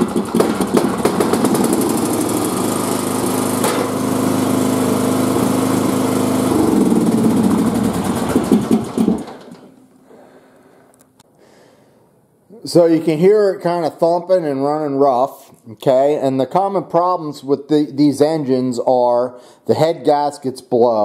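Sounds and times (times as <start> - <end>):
riding mower engine running rough: 0.0 - 9.8.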